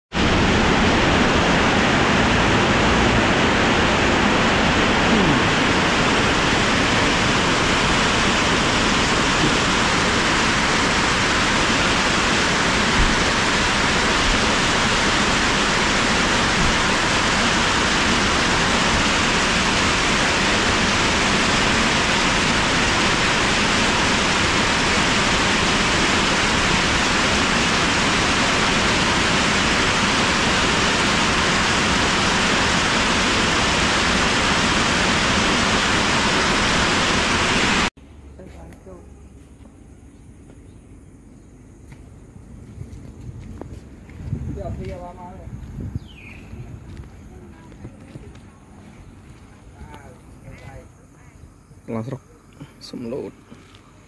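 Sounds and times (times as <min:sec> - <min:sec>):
heavy rain pouring: 0:00.1 - 0:38.0.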